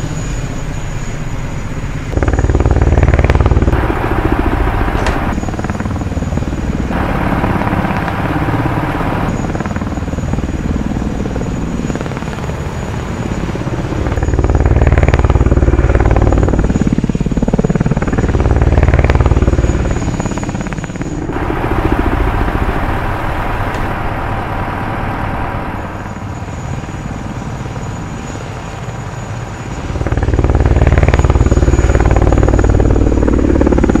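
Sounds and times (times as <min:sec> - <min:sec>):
thin high whine: 0:00.0 - 0:05.8, 0:06.9 - 0:10.3, 0:18.1 - 0:33.9
mechanical drone and whirring: 0:00.0 - 0:34.0
low rumble: 0:02.1 - 0:10.0, 0:21.0 - 0:26.8.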